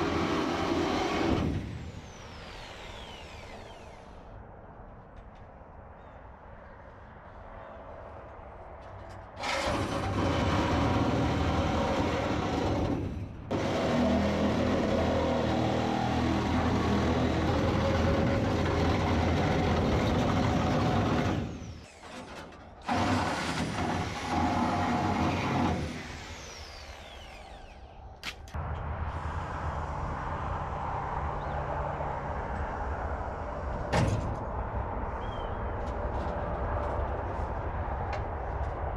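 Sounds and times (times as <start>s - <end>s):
cut-off wheel cutting sheet steel: 0.0s - 4.3s, 9.4s - 28.0s.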